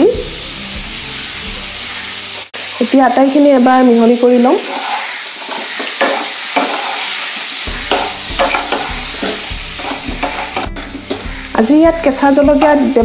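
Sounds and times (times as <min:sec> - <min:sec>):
mango pieces sizzling in oil: 0:00.0 - 0:13.0
wooden spatula scraping a pan: 0:04.6 - 0:11.4
spatula knocking against pan: 0:07.8 - 0:11.3.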